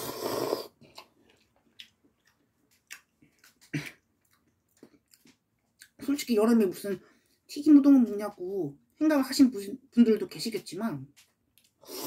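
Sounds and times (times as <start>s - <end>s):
person slurping noodles: 0.0s - 1.1s
wet chewing and mouth smacks: 0.8s - 6.0s, 11.2s - 11.8s.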